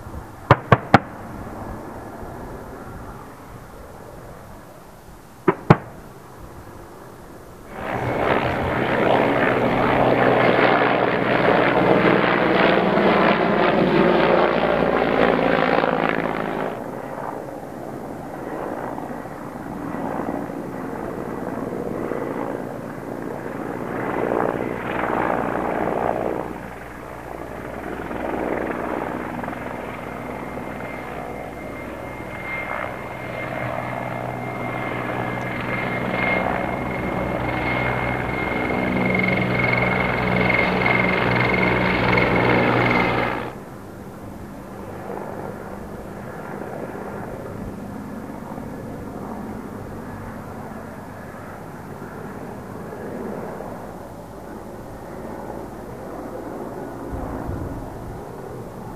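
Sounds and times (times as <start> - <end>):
helicopter rotor and engines: 0.0 - 58.9
high turbine whine: 5.3 - 45.4.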